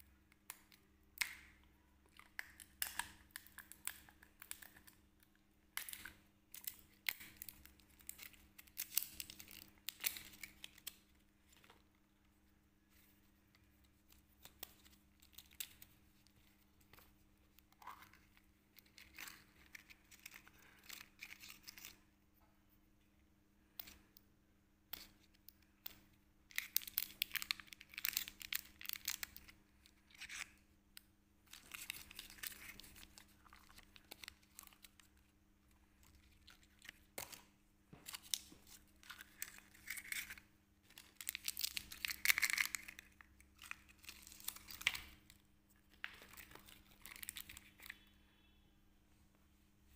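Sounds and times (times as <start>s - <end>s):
faint steady hum: 0.0s - 49.9s
plastic wrapper crinkling: 5.8s - 11.8s, 13.6s - 22.0s, 26.5s - 30.6s, 31.5s - 35.3s, 36.0s - 48.2s.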